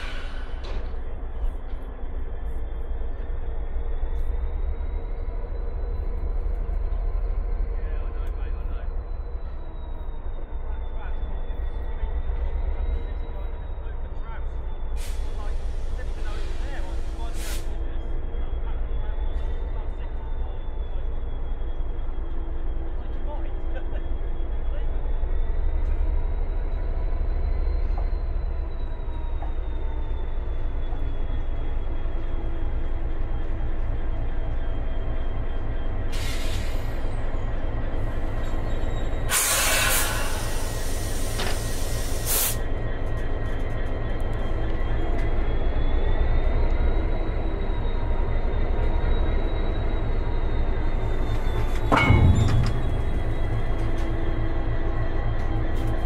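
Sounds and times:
diesel locomotive engine rumbling: 0.0 - 56.0
metal clank: 51.6 - 54.8.

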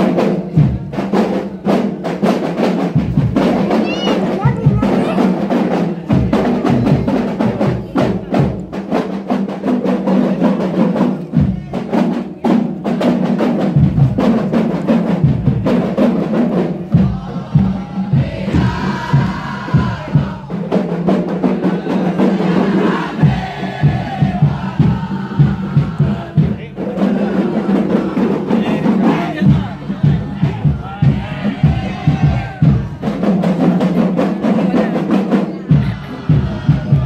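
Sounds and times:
hand drums beating: 0.0 - 37.0
group chanting: 16.4 - 37.0.

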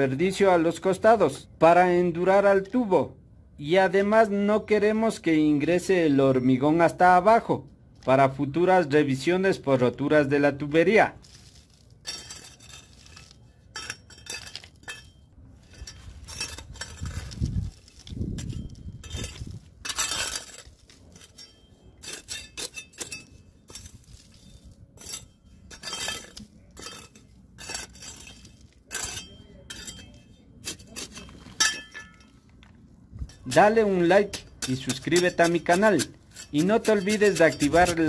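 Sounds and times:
rubble clinking and scraping: 11.1 - 38.0.

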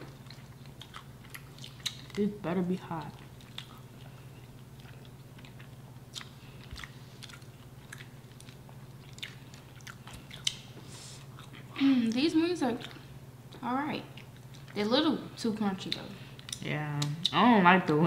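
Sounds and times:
chewing crunchy food: 0.0 - 13.1, 14.1 - 14.8.

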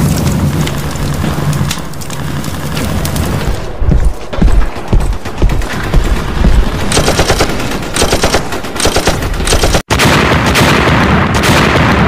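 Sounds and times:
heavy gun blast with rumble: 4.4 - 12.0
automatic gunfire bursts: 5.3 - 11.9.

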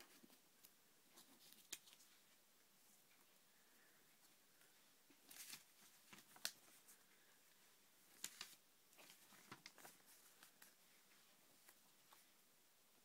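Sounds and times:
paper rustling: 0.0 - 2.2, 5.1 - 7.0, 8.1 - 12.3.

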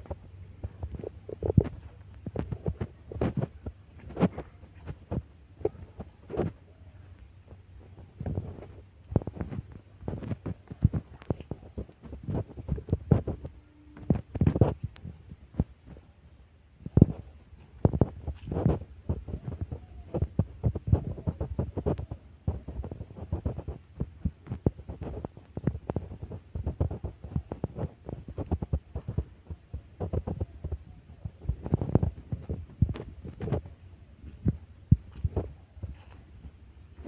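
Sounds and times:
footsteps on dirt path: 0.1 - 6.6.

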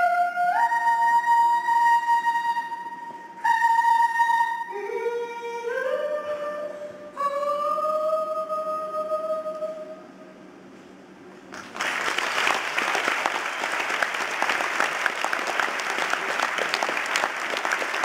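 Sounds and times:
audience applause: 11.6 - 18.0.

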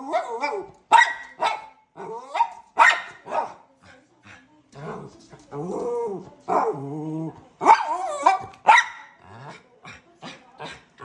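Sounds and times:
dog barking: 0.0 - 3.6, 7.6 - 9.2
dog yipping: 0.2 - 3.5.

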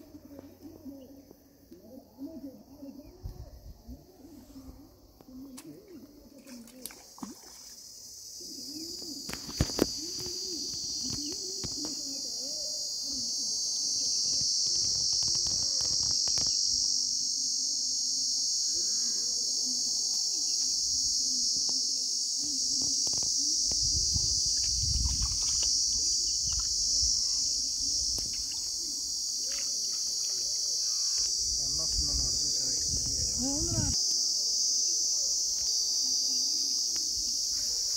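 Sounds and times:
insects buzzing: 0.0 - 37.9.

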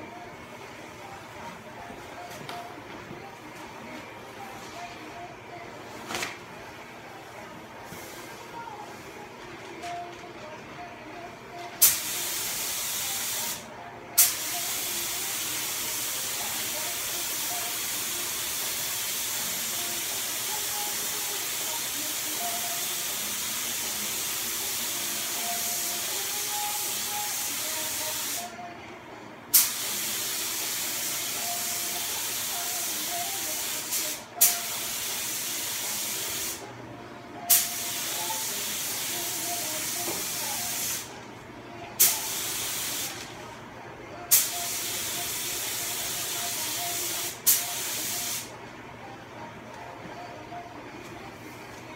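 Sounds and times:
sharp burst of air: 11.8 - 13.6, 29.5 - 30.8.

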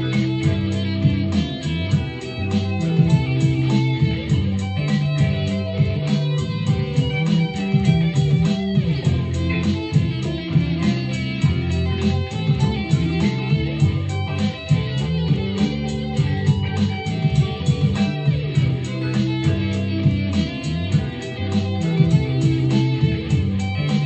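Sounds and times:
electric guitar over a beat: 0.0 - 24.0.

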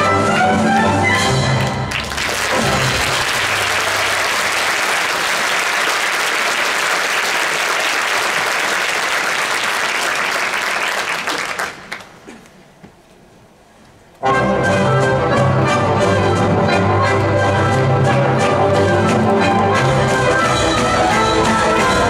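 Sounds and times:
orchestra playing: 0.0 - 5.0, 14.2 - 22.0
audience applauding: 0.0 - 12.4.

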